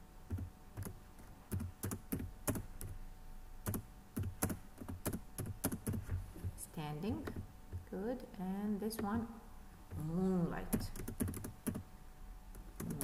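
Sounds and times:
keyboard typing: 0.3 - 3.0, 3.6 - 6.2, 10.7 - 11.9, 12.5 - 13.0.

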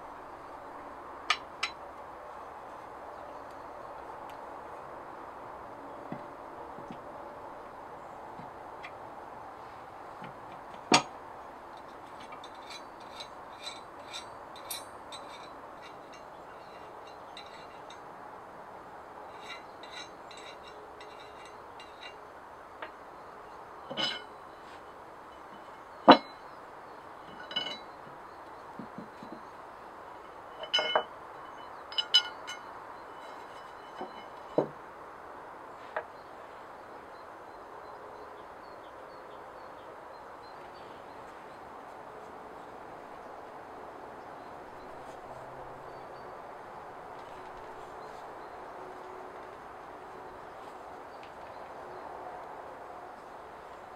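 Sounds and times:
metal parts clinking: 11.8 - 18.0, 19.3 - 22.2, 23.9 - 24.3, 25.6 - 26.4, 27.3 - 27.9, 30.6 - 31.1, 31.9 - 34.6.

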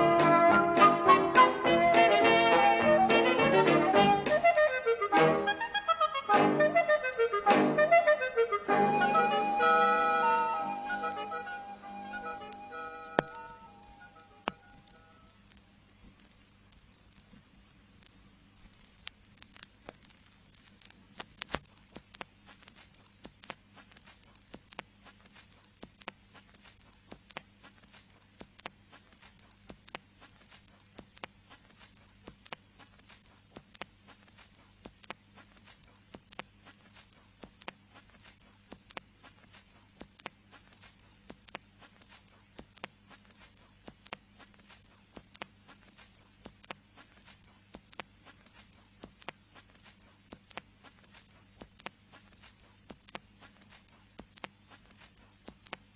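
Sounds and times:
low steady hum: 0.0 - 55.9
vinyl record crackle: 0.0 - 55.9
sharp vinyl clicks: 12.1 - 13.5, 14.2 - 55.9.

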